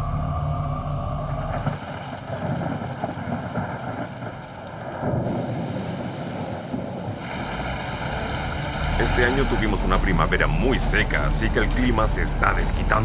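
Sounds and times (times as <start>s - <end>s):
wind: 0.0s - 10.4s
rain: 1.6s - 10.0s
heavy machine engine running: 7.0s - 11.1s.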